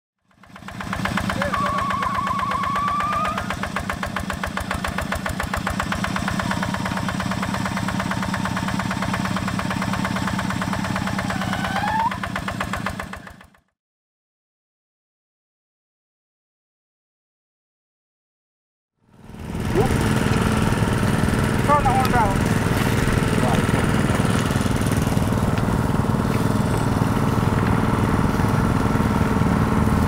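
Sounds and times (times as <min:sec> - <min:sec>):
diesel engine running: 0:00.3 - 0:13.7, 0:19.0 - 0:30.0
high wavering tone: 0:01.4 - 0:03.5.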